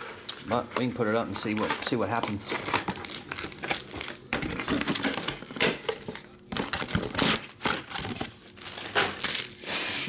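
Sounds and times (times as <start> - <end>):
foil wrappers crinkling: 0.0 - 9.8.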